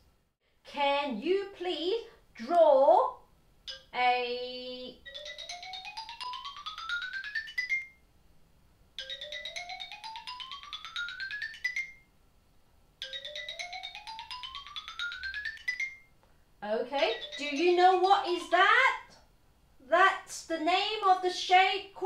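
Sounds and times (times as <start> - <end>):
electronic mallet jingle: 17.0 - 17.9.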